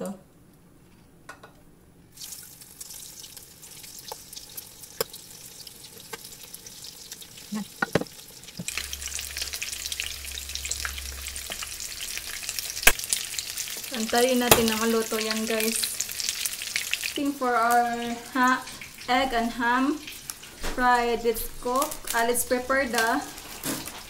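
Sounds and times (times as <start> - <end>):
food sizzling in hot oil: 2.1 - 24.0
sharp clicks of pieces in pan: 14.4 - 14.8.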